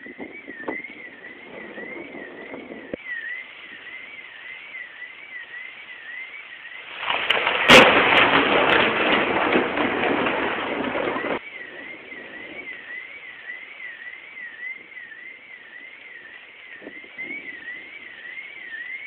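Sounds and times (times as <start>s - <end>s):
thunder crack and rumble: 0.0s - 3.0s, 7.0s - 15.0s.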